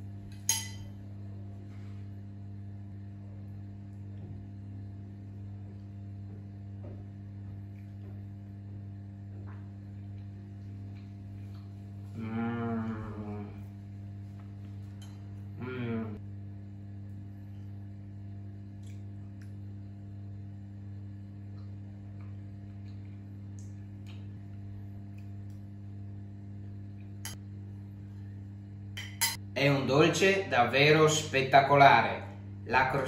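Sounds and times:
cutlery clinking on a plate: 0:00.4 - 0:00.9
person humming: 0:12.1 - 0:13.8, 0:15.5 - 0:16.2.

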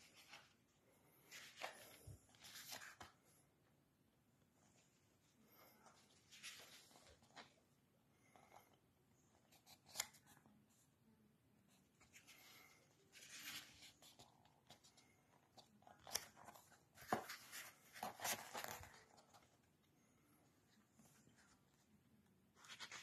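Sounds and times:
paper pages rustling: 0:00.0 - 0:03.4, 0:05.6 - 0:07.6, 0:09.4 - 0:10.4, 0:12.0 - 0:19.6, 0:22.5 - 0:23.0.

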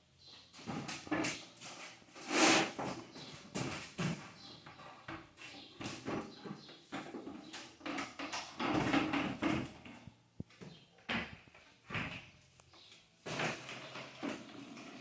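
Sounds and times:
paint roller swishing and scraping: 0:01.3 - 0:04.0.

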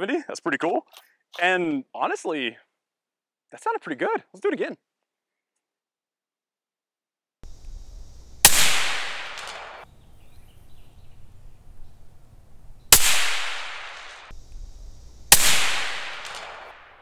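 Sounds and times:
gunshot echo: 0:08.4 - 0:09.8, 0:12.9 - 0:14.3, 0:15.3 - 0:17.0
suppressed rifle shots: 0:08.4 - 0:09.8, 0:12.9 - 0:14.3, 0:15.3 - 0:17.0.

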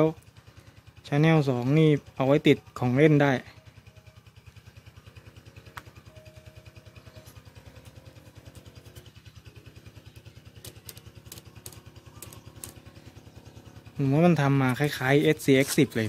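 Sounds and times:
engine idling hum: 0:00.0 - 0:16.0
plastic chassis clicks: 0:10.6 - 0:12.8.

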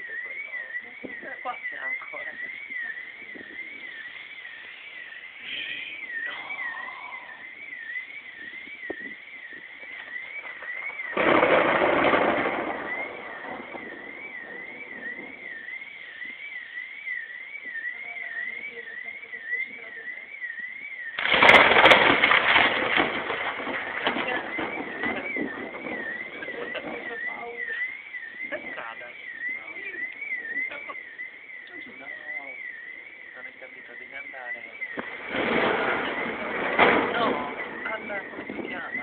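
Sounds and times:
warbling alarm tone: 0:00.0 - 0:39.0
thunder claps: 0:06.1 - 0:16.5, 0:21.1 - 0:31.2, 0:32.7 - 0:39.0.

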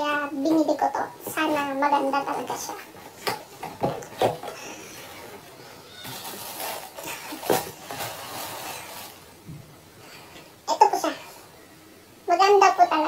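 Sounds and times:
paper rustling: 0:02.8 - 0:09.4.

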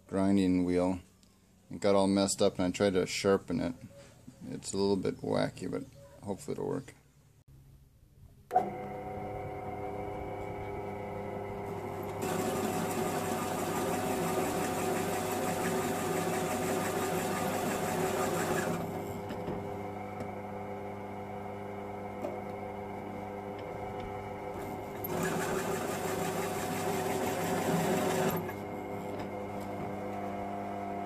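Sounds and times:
drill press motor humming: 0:08.5 - 0:31.0
hole saw cutting sheet steel: 0:12.2 - 0:19.1, 0:25.0 - 0:28.6.

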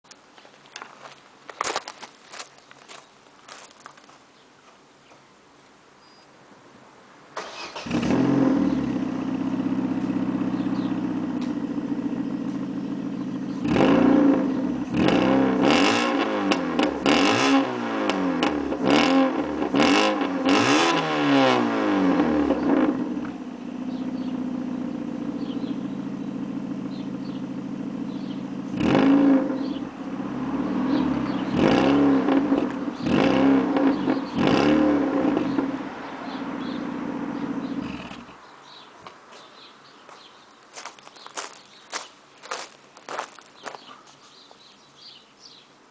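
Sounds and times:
car engine idling and revving: 0:07.4 - 0:38.4.

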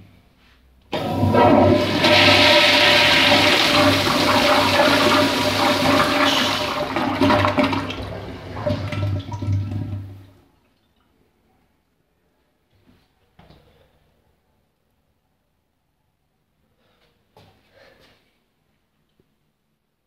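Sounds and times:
toilet flushing: 0:00.9 - 0:10.4.

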